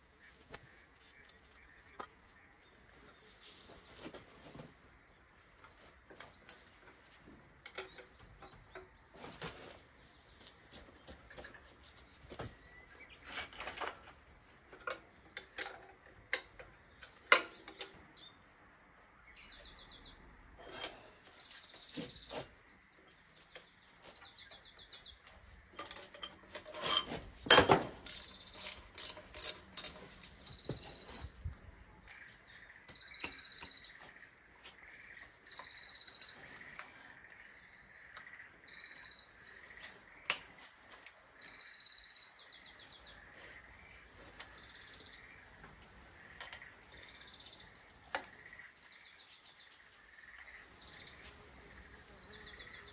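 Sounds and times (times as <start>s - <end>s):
metal tools knocking: 25.7s - 30.8s
socket ratchet clicking: 28.0s - 30.4s.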